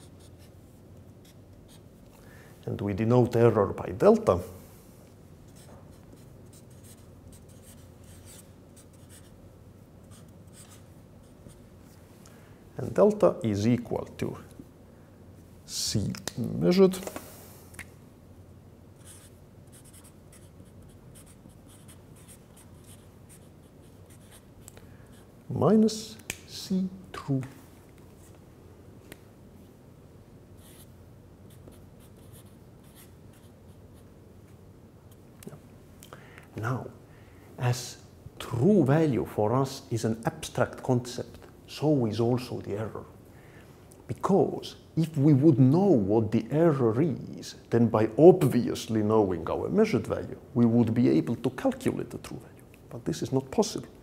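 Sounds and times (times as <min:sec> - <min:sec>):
marker scratching on paper: 0:00.0 - 0:00.5, 0:05.5 - 0:09.4, 0:10.0 - 0:11.6, 0:19.0 - 0:24.6, 0:31.5 - 0:34.1
low room hum: 0:00.0 - 0:54.0.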